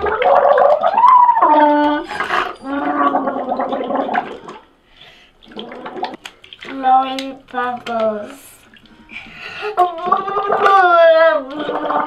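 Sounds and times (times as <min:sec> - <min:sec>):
blowing bubbles through a straw: 0:00.0 - 0:04.6, 0:05.4 - 0:06.3, 0:11.5 - 0:12.0.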